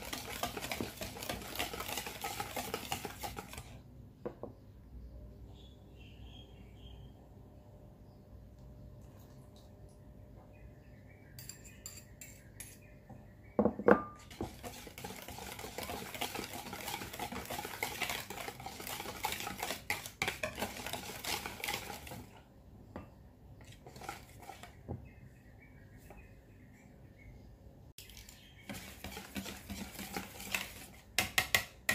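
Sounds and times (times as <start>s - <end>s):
whisk beating batter in bowl: 0.0s - 3.8s, 14.2s - 22.5s, 23.6s - 24.8s, 28.0s - 31.9s
whisk tapping: 0.0s - 3.8s, 14.2s - 22.4s, 28.6s - 31.9s.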